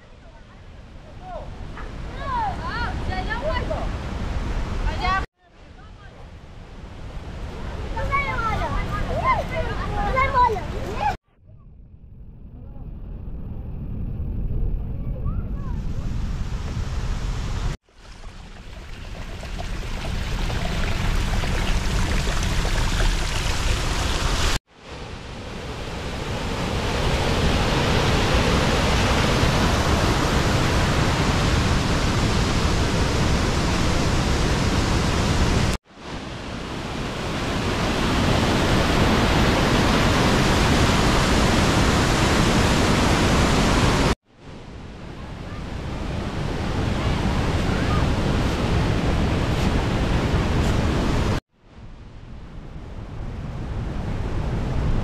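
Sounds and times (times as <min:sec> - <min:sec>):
waterfall rushing: 0:17.6 - 0:24.6.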